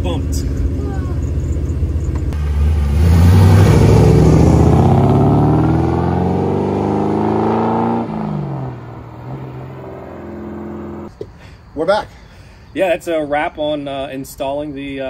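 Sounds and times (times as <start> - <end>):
car engine accelerating hard: 0.0 - 11.1.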